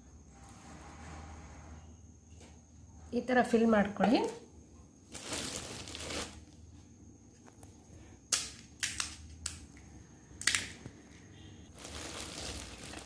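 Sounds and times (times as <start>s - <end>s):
crisp shells cracking: 11.7s - 13.0s.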